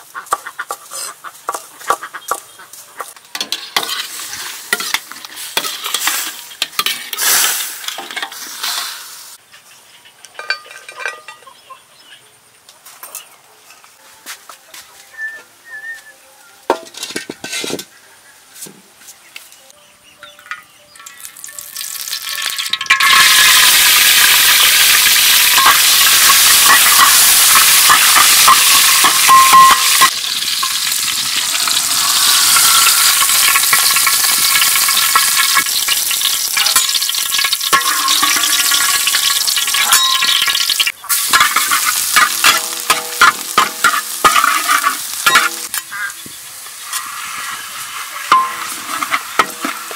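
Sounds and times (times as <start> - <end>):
metal spatula scraping wok: 3.0 - 9.4, 16.7 - 18.0, 22.4 - 49.9
garlic sizzling in oil: 21.0 - 49.9.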